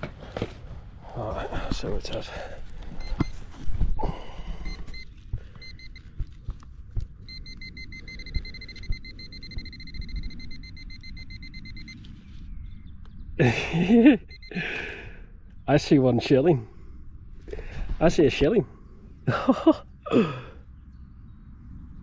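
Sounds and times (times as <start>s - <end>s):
metal detector beeps: 3.0s - 3.6s, 4.6s - 6.2s, 7.2s - 12.2s, 14.2s - 14.6s.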